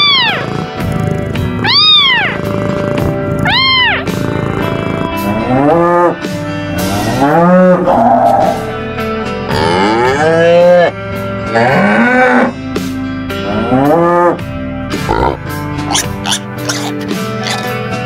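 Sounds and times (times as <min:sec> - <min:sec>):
light background music: 0:00.0 - 0:18.0
cattle mooing: 0:03.8 - 0:06.2, 0:06.8 - 0:08.7, 0:09.5 - 0:12.6.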